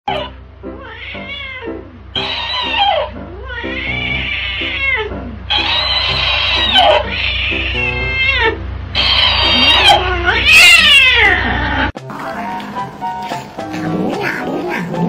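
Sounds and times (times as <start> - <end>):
cat yowling: 0.1 - 11.9
talking toy squeaky voice: 9.0 - 10.0
background music: 12.0 - 15.0.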